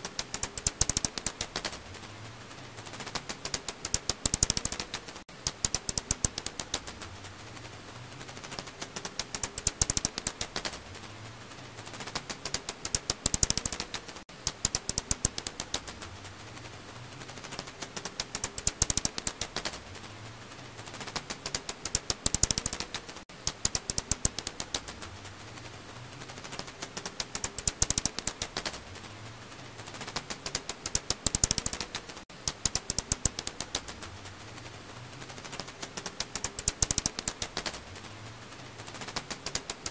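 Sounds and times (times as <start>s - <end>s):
bat echolocation clicks: 0.0s - 1.8s, 3.0s - 7.1s, 8.5s - 10.8s, 12.0s - 16.0s, 17.4s - 19.8s, 21.0s - 25.0s, 26.5s - 28.8s, 29.9s - 34.1s, 35.5s - 37.8s.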